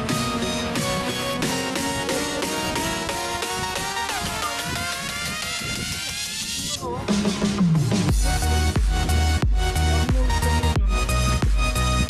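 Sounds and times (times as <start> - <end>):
low bass note sliding downward: 7.6 - 12.0.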